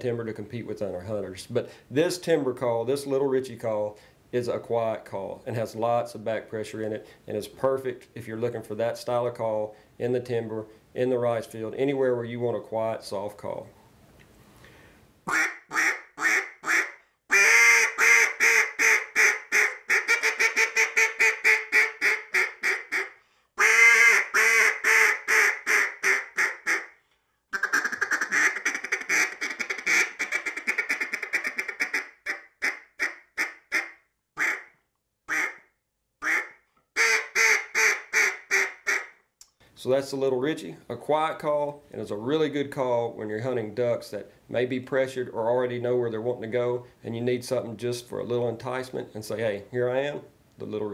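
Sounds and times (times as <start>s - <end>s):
duck call quacks: 15.3s - 34.7s, 35.3s - 39.1s.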